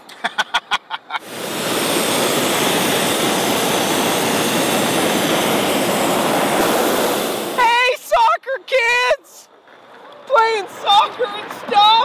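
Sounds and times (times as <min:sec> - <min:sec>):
propane burner blasting: 0:01.2 - 0:08.0.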